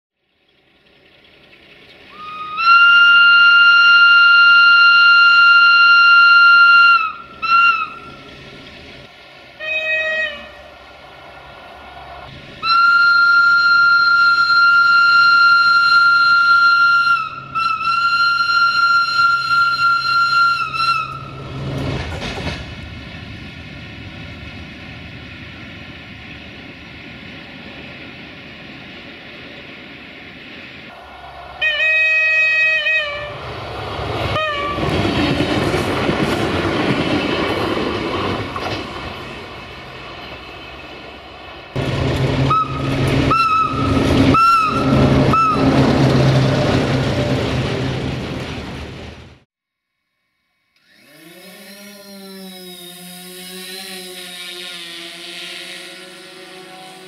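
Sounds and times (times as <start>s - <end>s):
locomotive air horn blasts: 2.1s - 8.3s, 9.6s - 10.8s, 12.6s - 21.6s, 30.9s - 33.4s, 34.3s - 34.9s, 41.8s - 46.0s, 53.3s - 57.0s.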